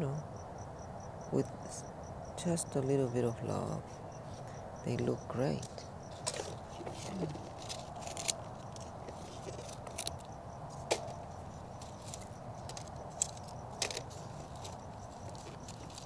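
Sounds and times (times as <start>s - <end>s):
dry leaves crackling and rustling: 5.6s - 16.0s.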